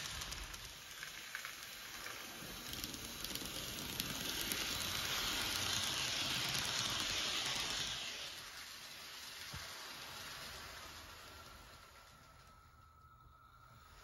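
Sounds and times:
model train wheels rushing on rail: 0:00.0 - 0:14.0.

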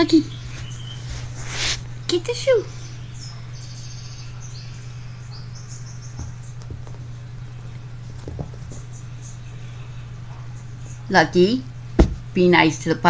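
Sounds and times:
high chirping trills: 0:00.0 - 0:01.3, 0:02.1 - 0:06.6
steady low hum: 0:00.0 - 0:13.0.

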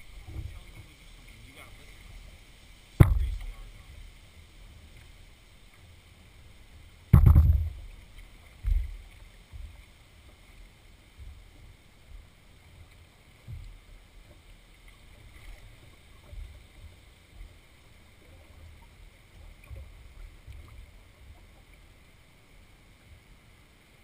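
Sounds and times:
faint water wash: 0:00.0 - 0:24.0
paddle knocks on canoe hull: 0:03.0 - 0:03.6, 0:07.1 - 0:07.8.

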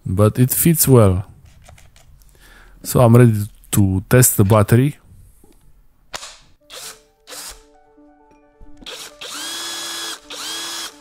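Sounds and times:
drill motor whining: 0:06.7 - 0:07.6, 0:08.8 - 0:11.0.

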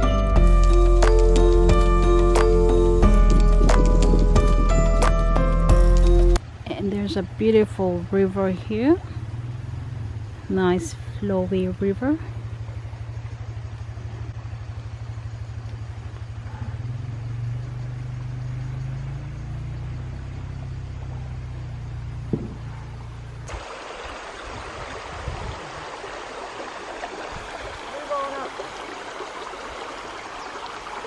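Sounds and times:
engine idling: 0:00.0 - 0:23.5
river flowing: 0:00.0 - 0:31.0.

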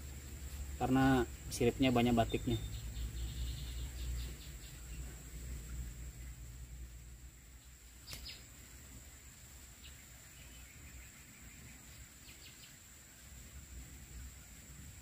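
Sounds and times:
sharp click: 0:08.0 - 0:08.4.

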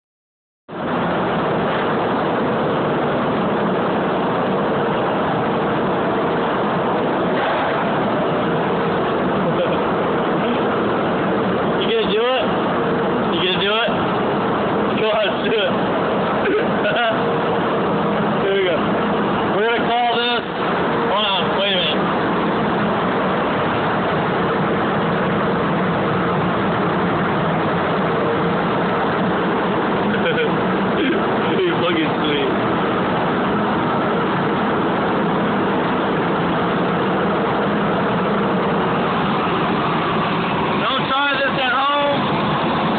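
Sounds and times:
loud machinery noise: 0:00.7 - 0:42.9
faint hum: 0:00.8 - 0:42.9.

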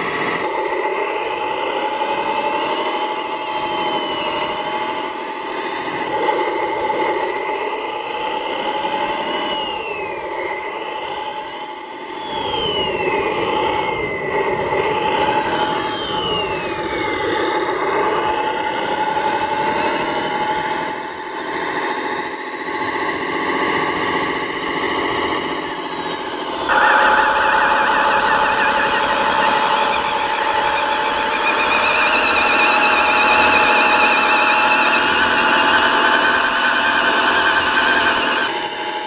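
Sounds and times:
high falling whistle: 0:01.1 - 0:05.6, 0:07.8 - 0:21.0, 0:25.2 - 0:39.0
rc car motor whining: 0:26.1 - 0:38.8.

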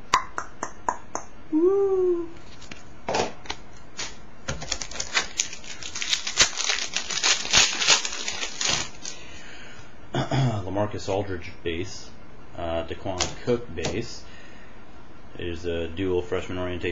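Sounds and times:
card pack wrapper crinkling: 0:04.0 - 0:09.2.

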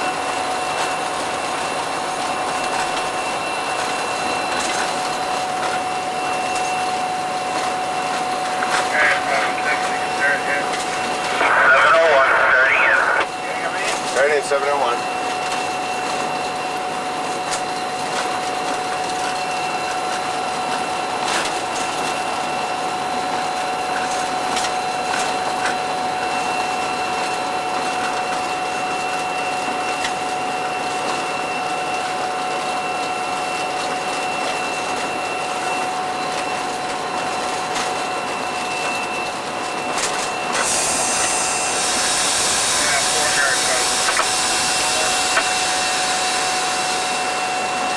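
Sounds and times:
steady high whine: 0:00.0 - 0:18.0, 0:38.0 - 0:47.9
diesel locomotive engine running: 0:00.0 - 0:47.9.

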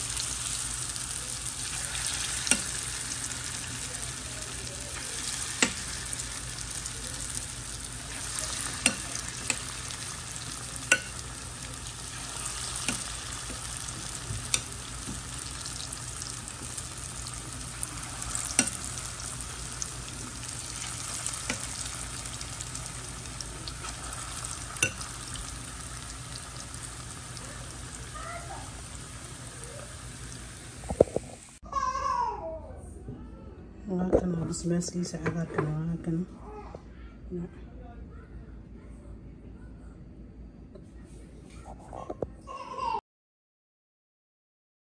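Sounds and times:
oil deep-frying with bubbling sizzle: 0:00.0 - 0:31.6.

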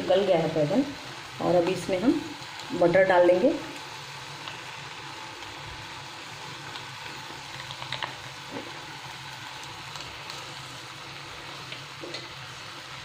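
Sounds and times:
eggplant simmering in a pan: 0:00.0 - 0:13.0
small pops and crackles: 0:06.6 - 0:08.8.

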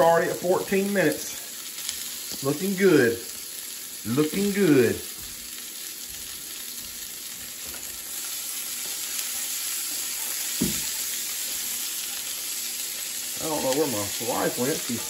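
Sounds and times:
sausage sizzling in skillet: 0:00.0 - 0:15.0.

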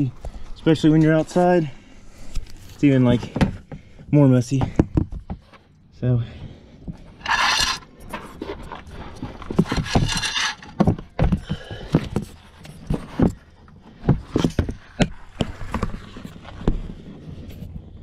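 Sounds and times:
knocks and scrapes: 0:06.9 - 0:17.8.

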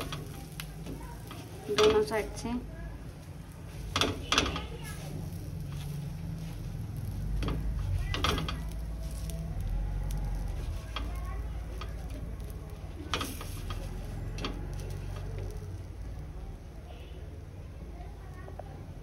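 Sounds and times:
buns sizzling on a hot pan: 0:00.0 - 0:19.0
steady low hum: 0:00.0 - 0:19.0
bread knocking and scraping pan: 0:03.7 - 0:09.4, 0:10.1 - 0:15.7.

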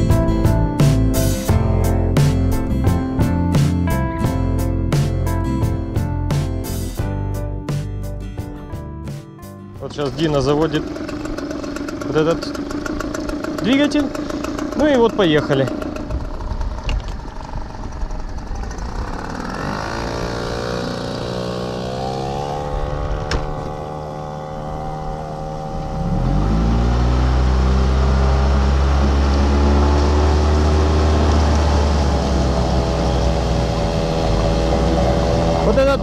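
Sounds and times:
small outboard motors: 0:09.8 - 0:36.0
loud motor revving: 0:09.9 - 0:36.0.

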